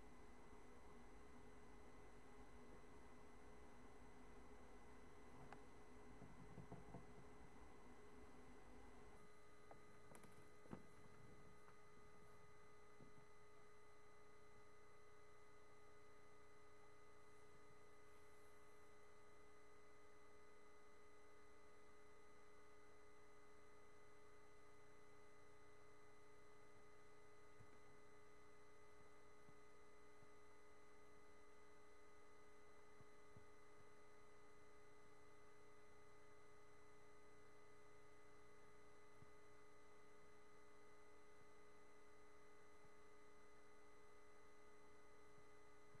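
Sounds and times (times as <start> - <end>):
faint electronic hum: 0.0 - 46.0.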